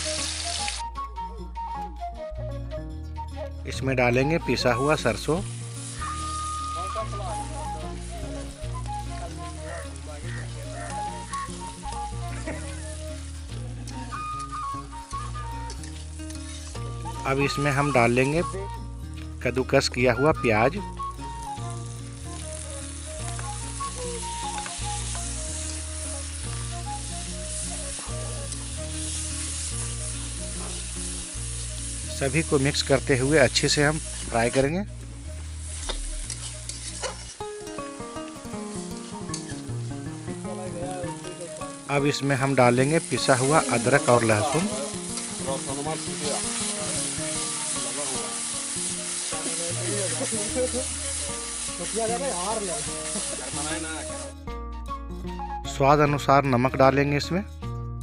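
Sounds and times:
onion sizzling in hot oil: 0:00.0 - 0:01.0, 0:04.3 - 0:54.4
background music: 0:00.0 - 0:58.0
metal spatula stirring: 0:35.7 - 0:37.4.

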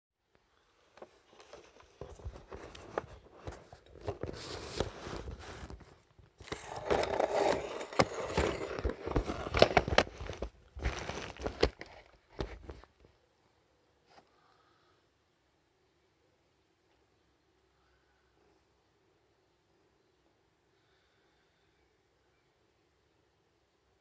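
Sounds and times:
handling noise rustling and clicks: 0:00.9 - 0:13.2.

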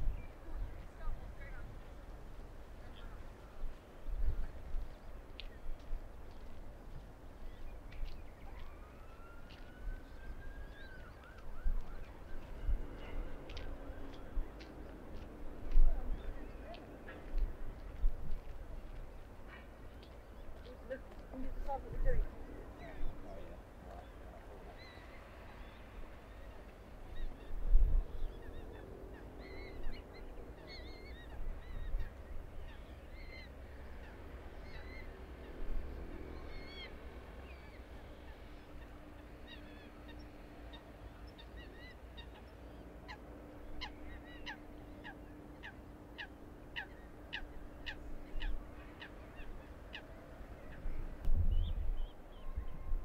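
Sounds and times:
birds calling: 0:18.9 - 0:52.8.

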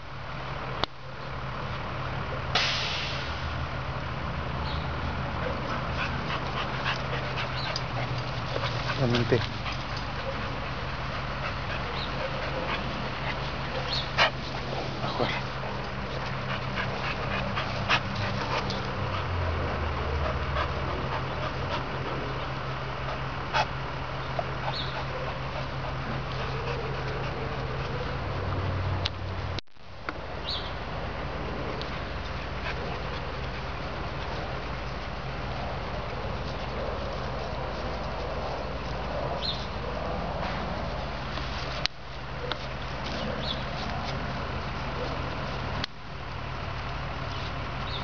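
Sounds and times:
heavy vehicle engine humming: 0:00.0 - 0:48.0
air brake hiss: 0:02.6 - 0:03.5
dog barking: 0:13.7 - 0:14.4, 0:42.4 - 0:42.7, 0:44.9 - 0:45.2.

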